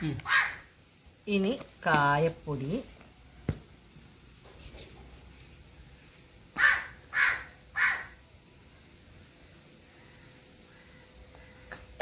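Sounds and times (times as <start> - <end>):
crow cawing: 0.2 - 0.6, 6.6 - 8.2, 9.9 - 12.0.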